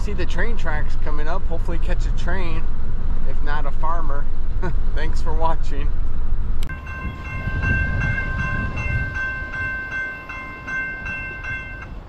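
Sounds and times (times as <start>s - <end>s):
car road noise: 0.0s - 12.0s
crossing warning bell ringing: 6.7s - 12.0s.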